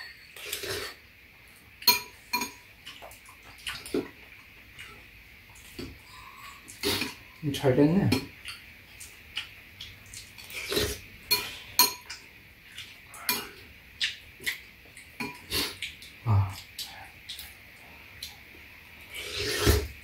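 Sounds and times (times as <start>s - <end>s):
metal spoons clinking on bowls: 0.0s - 1.0s, 11.3s - 12.1s
eating noises: 1.7s - 20.0s.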